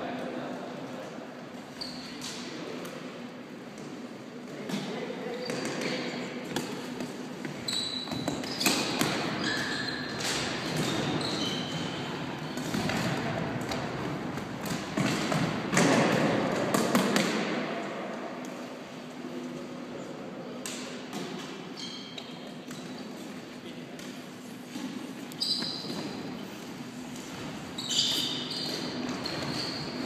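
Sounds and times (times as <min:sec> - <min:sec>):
sneaker squeaks on floor: 0:01.7 - 0:02.4, 0:07.4 - 0:12.8, 0:21.6 - 0:23.2, 0:24.8 - 0:26.5, 0:27.3 - 0:30.0.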